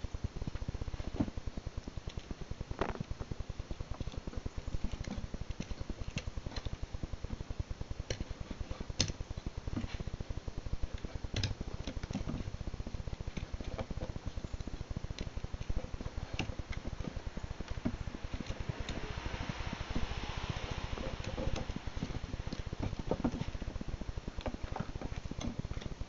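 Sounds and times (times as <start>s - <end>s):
fast low pulsing: 14.1s - 26.0s.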